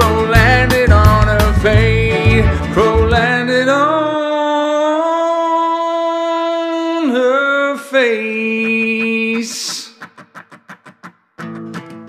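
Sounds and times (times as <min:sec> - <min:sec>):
person singing long notes: 0:00.0 - 0:09.9.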